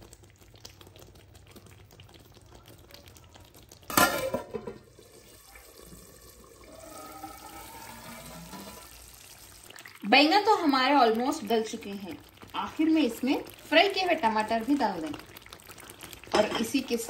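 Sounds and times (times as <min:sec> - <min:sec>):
metal lid clanking on pot: 0:03.9 - 0:04.9.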